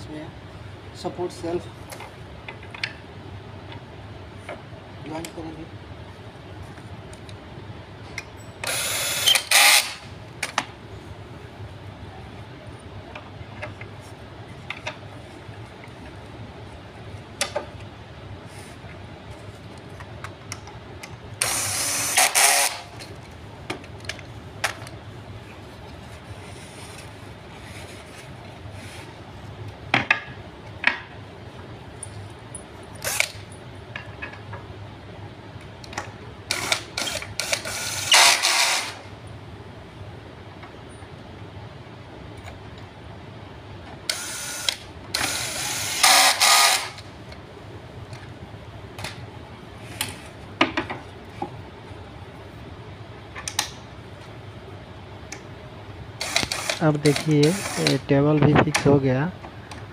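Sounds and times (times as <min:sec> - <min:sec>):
cordless drill driving screw: 0:08.6 - 0:10.0, 0:21.4 - 0:22.9, 0:33.0 - 0:33.4, 0:36.5 - 0:39.0, 0:44.1 - 0:47.0, 0:56.2 - 0:58.0.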